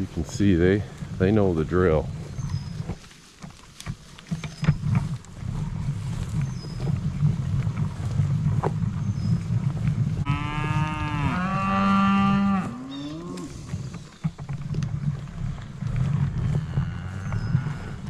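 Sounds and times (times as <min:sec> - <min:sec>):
low microphone rumble: 0:04.5 - 0:18.0
cow mooing: 0:10.2 - 0:13.7, 0:16.3 - 0:18.0.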